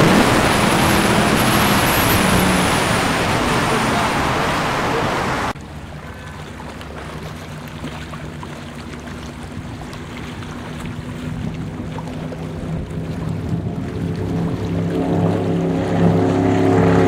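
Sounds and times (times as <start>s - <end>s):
powerboat engines droning: 0.0s - 17.0s
wind and engine rush onboard: 0.0s - 17.0s.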